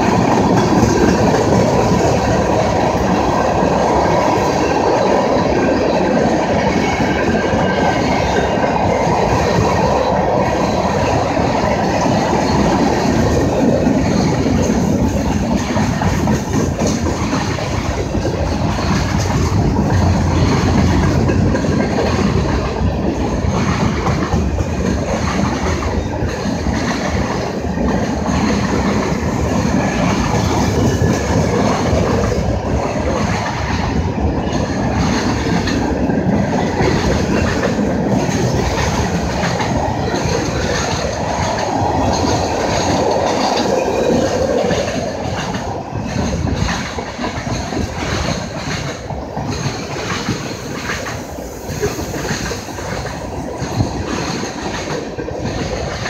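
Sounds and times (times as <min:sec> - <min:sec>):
steel wheels rumbling on rails: 0:00.0 - 0:56.0.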